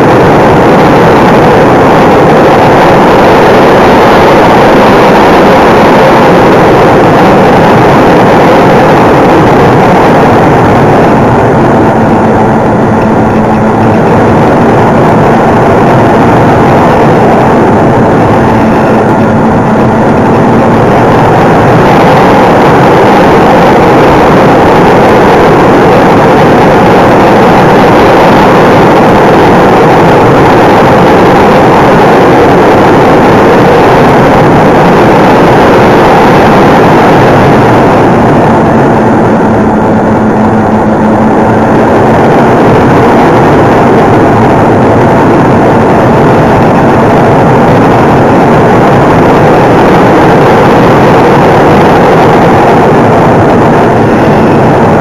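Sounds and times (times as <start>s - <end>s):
propeller and motor noise: 0.0s - 55.0s
steady hum: 0.0s - 55.0s
wind rushing past: 0.0s - 55.0s.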